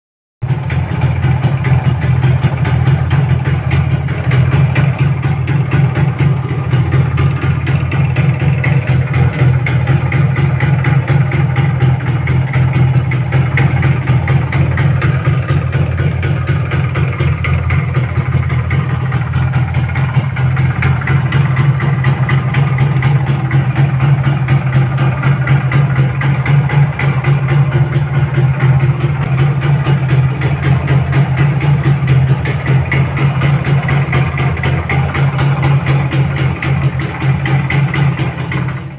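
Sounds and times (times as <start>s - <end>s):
motorcycle engine idling: 0.4s - 38.9s.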